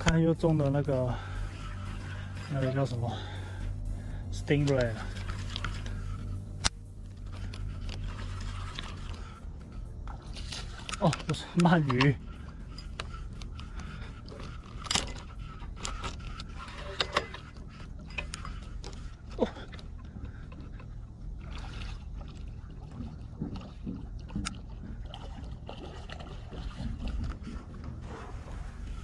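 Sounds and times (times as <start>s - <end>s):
water: 0.0s - 29.0s
wind: 0.0s - 29.0s
fishing reel clicks and knocks: 4.5s - 19.1s.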